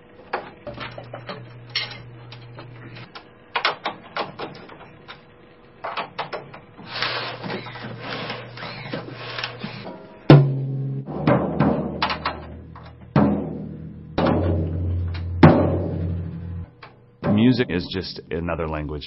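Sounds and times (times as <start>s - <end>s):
drum hardware clicks and rattles: 9.8s - 18.0s
faint low hum: 10.3s - 19.0s.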